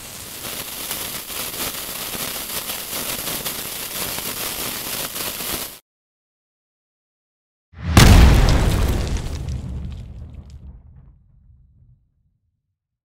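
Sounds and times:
fuse sizzling and crackling: 0.0 - 5.8.

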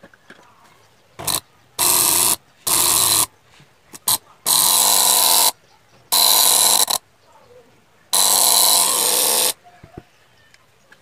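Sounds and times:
compressor coil buzzing: 1.2 - 3.3, 4.0 - 7.0, 8.2 - 9.6.

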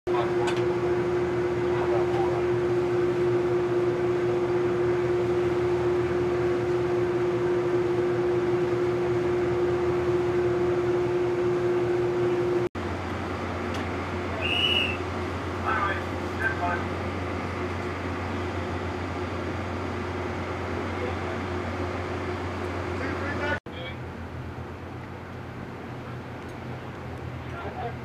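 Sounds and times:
quieter steady hum: 0.1 - 28.0
ship machinery humming: 0.1 - 28.0.

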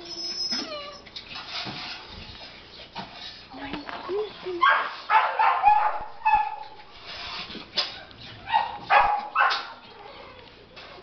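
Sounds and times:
dogs barking: 4.6 - 6.8, 7.8 - 10.4.

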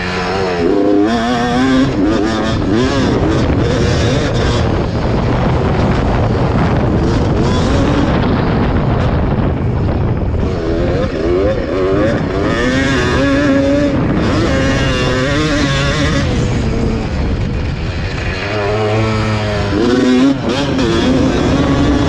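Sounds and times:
two-stroke engine revving: 0.0 - 22.0.

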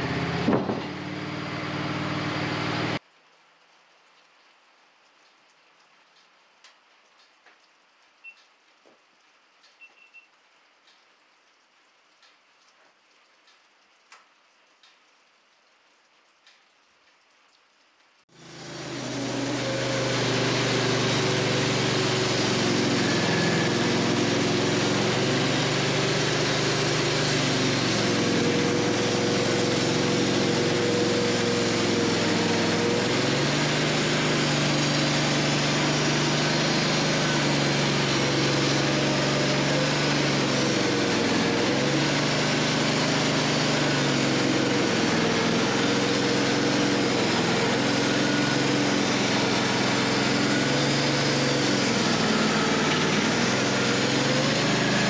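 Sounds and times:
sawmill engine running: 0.0 - 3.0, 18.3 - 55.0.

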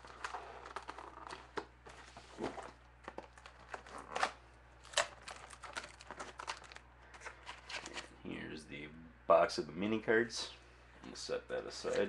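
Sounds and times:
cardboard crinkling: 0.0 - 8.1.

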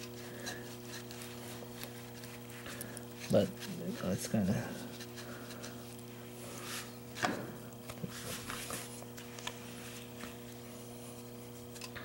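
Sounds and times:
low electrical hum: 0.0 - 12.0
cloth rustling: 8.0 - 11.7.

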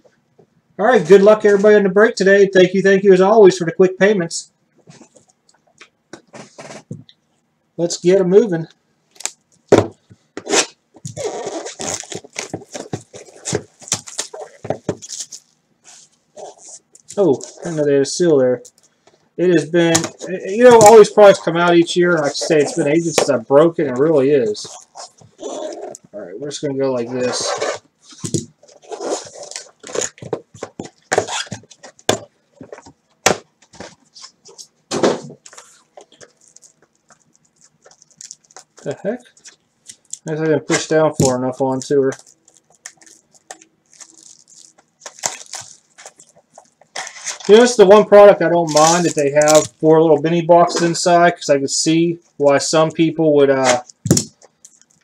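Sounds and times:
plastic shrink wrap crinkling: 11.0 - 17.9, 27.3 - 32.9, 35.4 - 49.9, 53.6 - 55.0.

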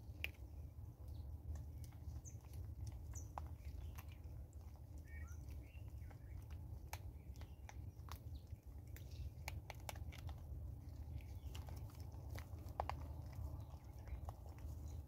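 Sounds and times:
low steady rumble: 0.0 - 15.0
monkeys crunching seeds: 0.0 - 15.0
faint bird chirps: 5.0 - 9.4.

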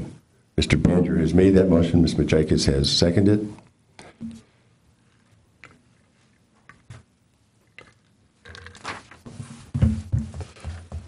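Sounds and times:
pages rustling and turning: 8.5 - 9.8
heavy bump against desk: 9.4 - 11.0.

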